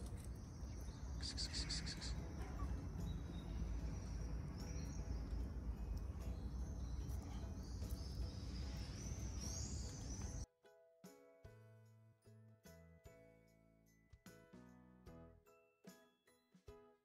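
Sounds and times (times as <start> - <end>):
faint high bird chirps: 0.0 - 10.5
quiet music: 0.0 - 17.0.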